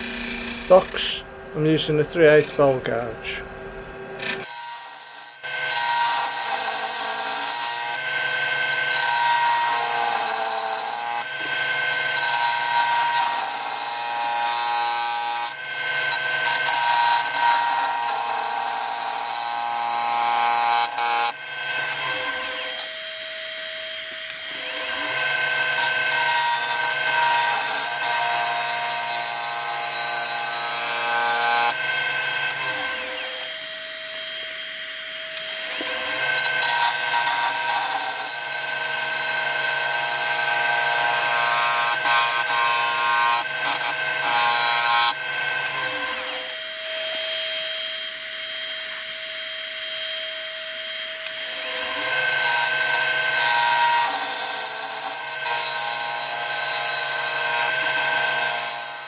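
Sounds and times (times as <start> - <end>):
lathe motor hum: 0.0 - 2.8.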